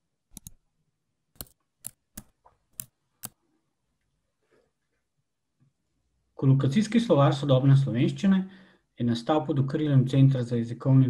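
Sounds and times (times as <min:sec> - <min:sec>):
computer mouse clicks: 0:00.3 - 0:00.6, 0:01.3 - 0:03.4.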